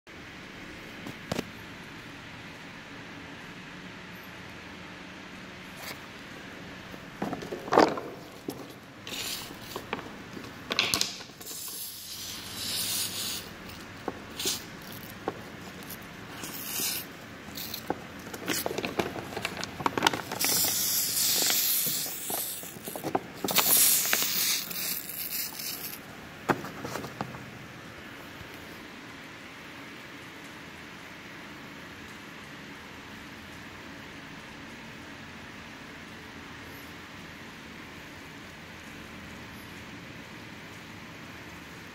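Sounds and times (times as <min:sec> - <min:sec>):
knocks and handling noise: 0:06.9 - 0:11.6, 0:13.7 - 0:16.1, 0:17.6 - 0:20.8, 0:21.4 - 0:24.2, 0:26.4 - 0:27.6
foam spray hissing: 0:09.1 - 0:09.9, 0:11.3 - 0:15.2, 0:15.8 - 0:17.9, 0:20.4 - 0:26.0.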